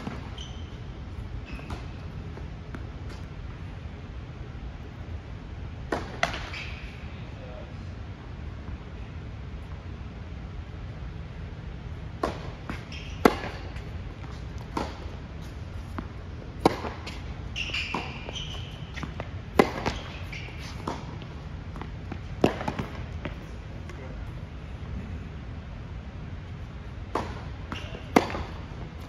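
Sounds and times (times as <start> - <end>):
racket hitting tennis ball: 0.0 - 0.5, 5.8 - 6.8, 12.1 - 24.0, 27.0 - 29.0
high squeak: 0.1 - 2.1, 6.4 - 7.0, 12.8 - 13.7, 17.5 - 19.1, 19.8 - 20.9
ball bouncing on court: 5.9 - 6.8, 12.2 - 15.1, 15.9 - 23.5, 27.1 - 28.7.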